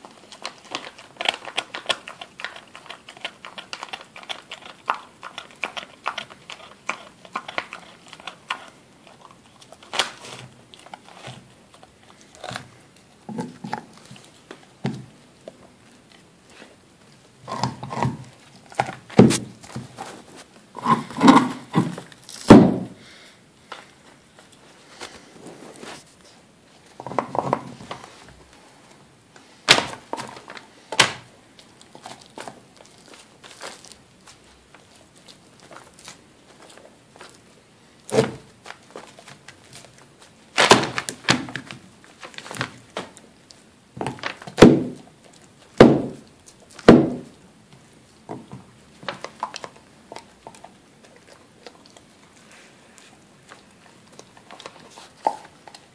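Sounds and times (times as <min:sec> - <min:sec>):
dog chewing a bone: 0:00.0 - 0:22.4, 0:31.2 - 0:40.6, 0:41.5 - 0:55.9
bone thunking on wooden board: 0:21.2 - 0:23.0, 0:44.0 - 0:45.0, 0:45.8 - 0:46.2, 0:46.8 - 0:47.3.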